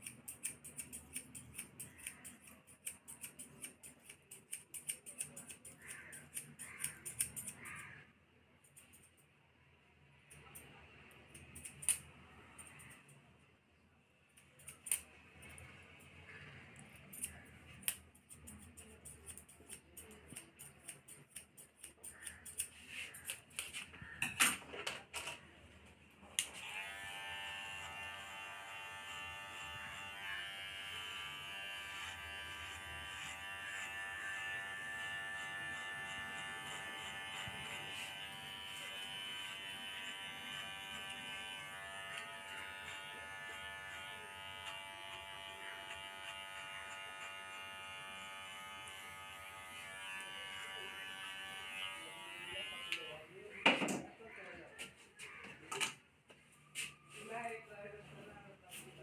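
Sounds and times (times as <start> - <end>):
scissors snipping hair: 0.0 - 8.0, 8.6 - 9.3, 10.3 - 13.2, 14.4 - 15.7, 16.7 - 24.2, 26.3 - 26.7, 30.9 - 49.0
electric hair clipper humming: 26.4 - 53.1.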